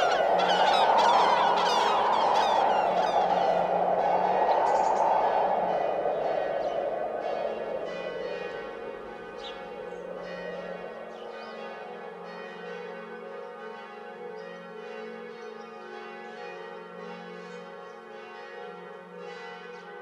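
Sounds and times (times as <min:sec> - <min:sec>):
loud rushing noise: 0:00.0 - 0:11.2
bells ringing: 0:00.0 - 0:15.0.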